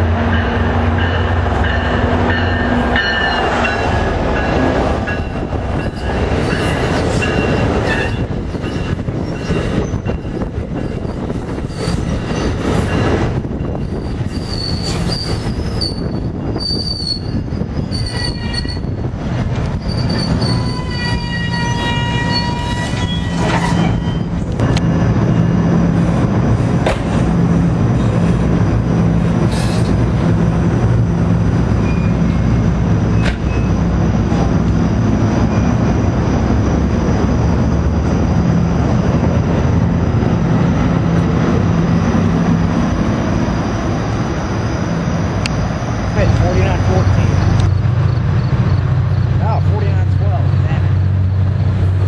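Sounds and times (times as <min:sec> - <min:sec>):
train rumbling and clacking: 0:00.0 - 0:52.0
wheel squeals: 0:13.7 - 0:18.9, 0:19.6 - 0:25.5, 0:31.8 - 0:32.3
train horn: 0:20.6 - 0:23.7.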